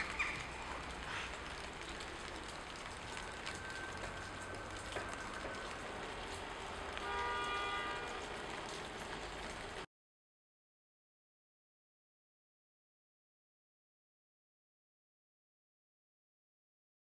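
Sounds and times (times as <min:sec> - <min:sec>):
outdoor background noise: 0:00.0 - 0:09.9.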